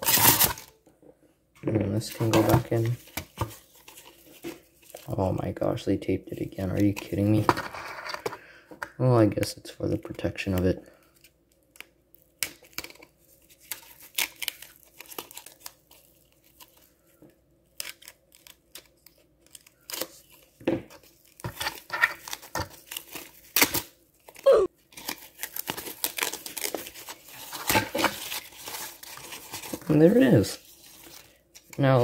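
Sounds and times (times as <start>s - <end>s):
tape and wrapping tearing: 0.0s - 0.8s, 11.7s - 16.8s, 17.7s - 29.9s.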